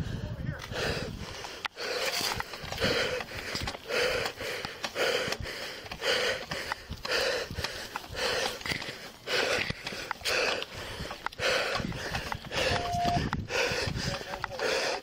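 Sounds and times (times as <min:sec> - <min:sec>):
man breathing heavily: 0:00.0 - 0:15.0.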